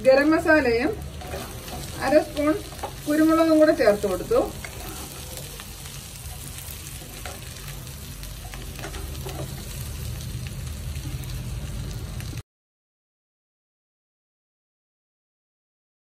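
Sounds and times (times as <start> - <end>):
chicken sizzling in a frying pan: 0.0 - 12.4.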